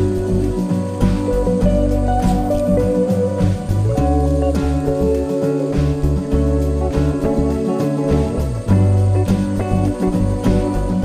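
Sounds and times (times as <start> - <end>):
instrumental guitar music: 0.0 - 11.0.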